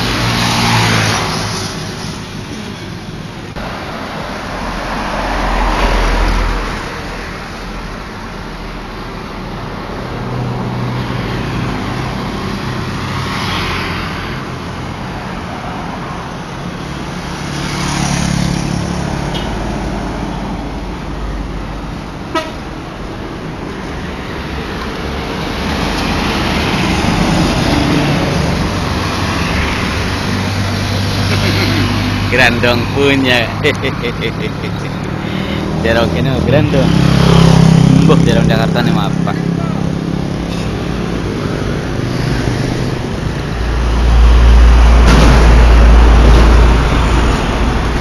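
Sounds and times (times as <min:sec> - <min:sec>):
vehicles passing: 0:00.0 - 0:48.0
car horn toot: 0:22.3 - 0:22.6.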